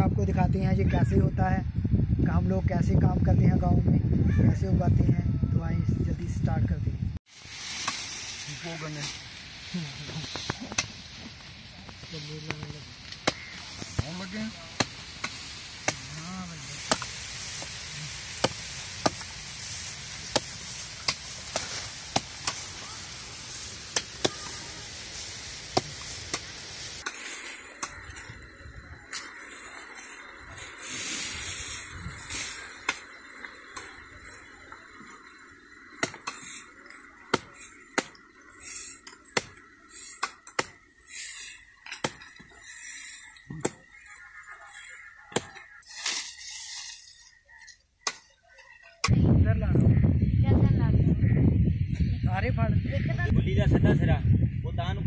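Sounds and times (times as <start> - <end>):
hatchet chopping grass canes: 7.6 - 8.3, 10.2 - 11.0, 12.5 - 19.4, 20.2 - 22.8, 23.8 - 24.8, 25.6 - 28.2, 32.8 - 33.1, 36.0 - 36.6, 37.3 - 42.7, 43.5 - 44.1, 45.3 - 46.5.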